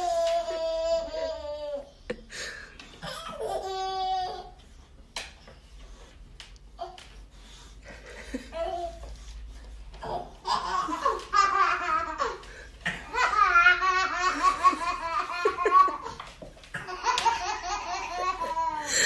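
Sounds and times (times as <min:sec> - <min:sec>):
baby laughing: 0:03.0 - 0:04.5, 0:10.0 - 0:19.0.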